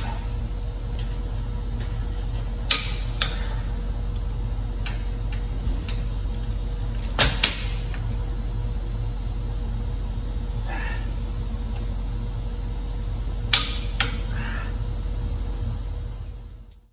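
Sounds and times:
low hum: 0.0s - 16.9s.

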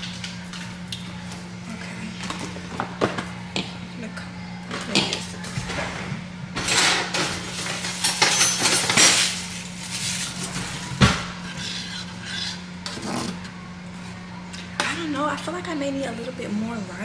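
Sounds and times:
utensils rattling in drawer: 6.6s - 10.2s.

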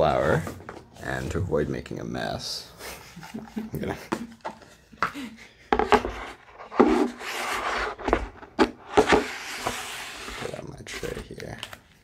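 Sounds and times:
wood sliding and scraping: 5.7s - 11.2s.

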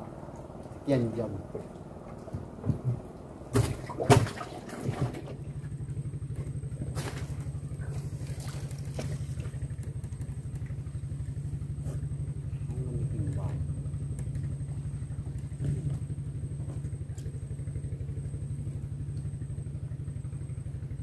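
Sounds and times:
small boat engine running: 0.0s - 21.0s
sharp knocks and clatters: 2.1s - 5.4s.

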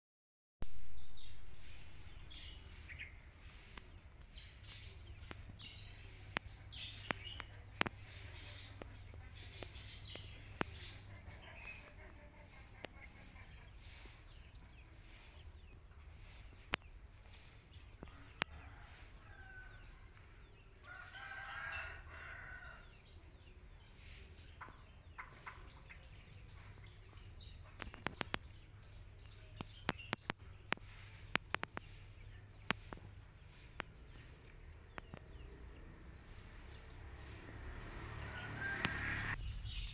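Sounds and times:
faint rooster crowing: 18.0s - 23.0s, 36.4s - 39.4s.

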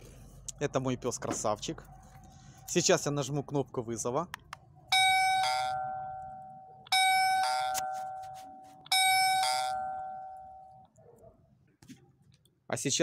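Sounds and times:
two-note doorbell chime: 5.0s - 10.8s.

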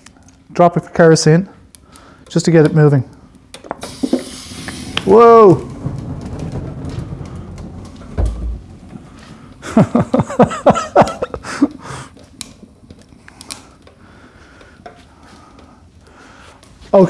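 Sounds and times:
rush of flame: 3.1s - 17.0s
man laughing: 9.6s - 12.0s.

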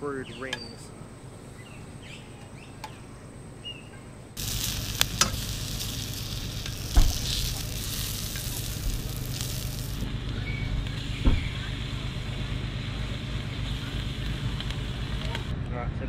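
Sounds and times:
onion rings sizzling in butter: 4.4s - 15.5s.

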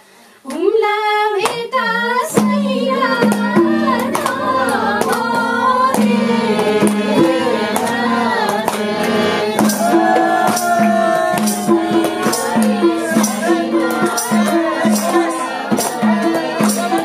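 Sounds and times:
person singing: 1.8s - 17.0s
drum strokes: 2.4s - 17.0s
steady low drone note: 3.5s - 14.6s.

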